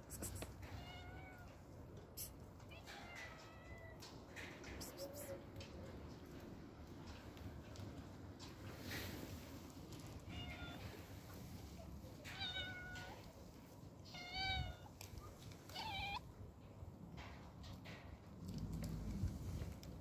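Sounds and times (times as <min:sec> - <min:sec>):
cat meowing: 0:12.3 - 0:13.3, 0:14.1 - 0:15.0, 0:15.7 - 0:16.2.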